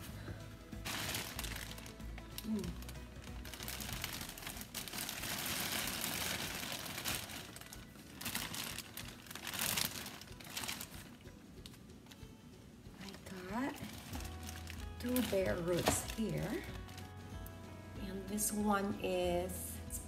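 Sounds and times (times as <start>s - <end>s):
plastic bag crinkling: 0.8s - 12.2s, 13.0s - 17.2s.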